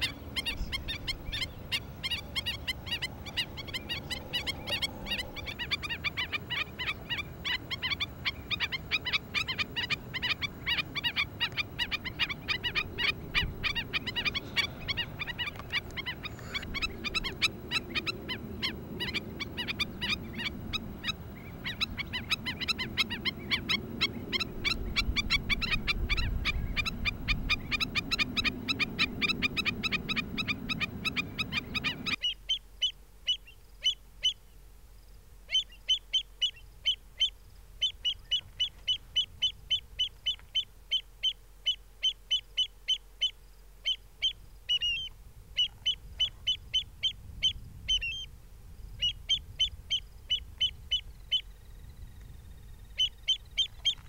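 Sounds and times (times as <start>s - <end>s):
shorebirds chorus: 0.0s - 32.4s
bird's sharp high calls: 0.0s - 34.4s, 52.5s - 54.0s.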